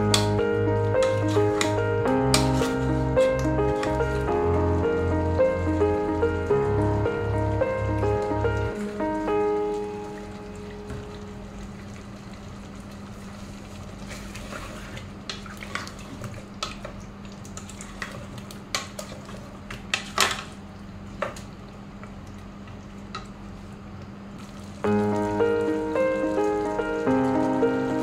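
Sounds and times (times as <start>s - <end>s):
low hum: 0.0s - 13.0s
wooden spoon scraping metal pot: 1.0s - 4.2s.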